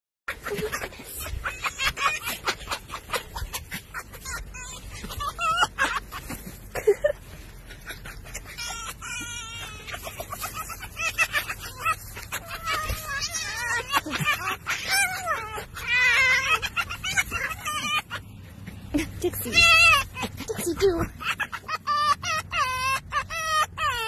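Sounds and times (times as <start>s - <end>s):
fox whining: 0.3s - 24.0s
foxes cackling: 0.3s - 24.0s
fox wavering trills: 7.6s - 18.4s.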